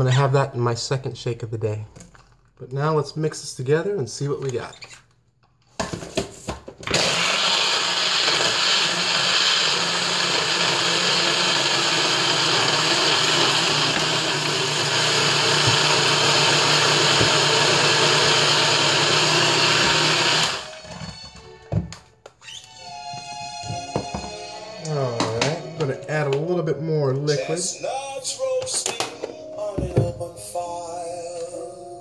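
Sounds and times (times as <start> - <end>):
blender running: 6.8 - 21.0.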